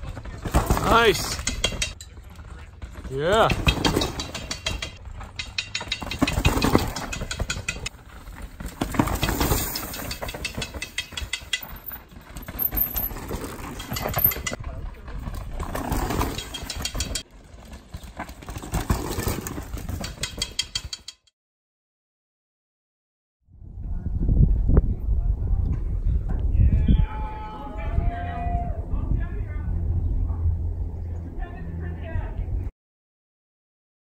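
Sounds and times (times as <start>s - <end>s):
tyres crunching and skidding on dirt: 0.0s - 20.5s
bike rattling: 0.0s - 21.3s.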